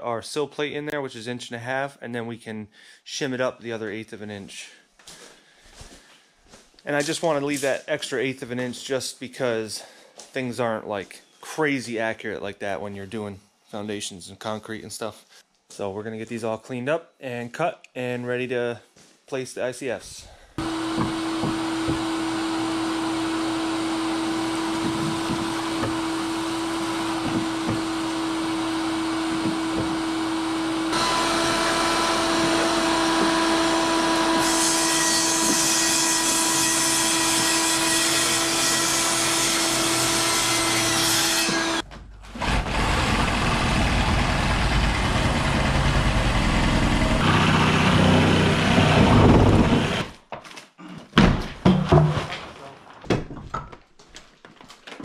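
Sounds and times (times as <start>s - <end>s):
shop vacuum humming: 20.6s - 35.7s, 42.5s - 50.0s
rough low power tool noise: 20.6s - 41.8s, 42.4s - 50.1s.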